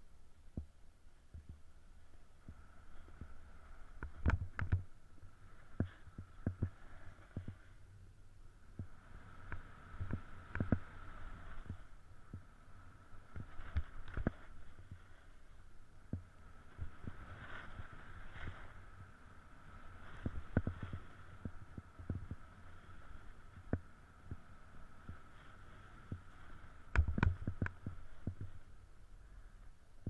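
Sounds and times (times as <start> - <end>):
snowboard scraping over snow: 9.0 - 12.0, 13.2 - 15.6, 16.5 - 28.7
board knocking on bumpy snow: 26.9 - 28.6.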